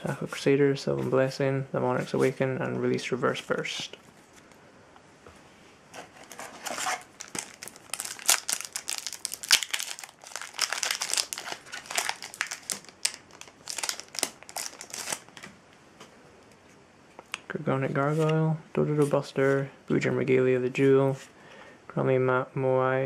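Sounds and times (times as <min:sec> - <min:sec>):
foil pack crinkling: 0:06.0 - 0:15.5.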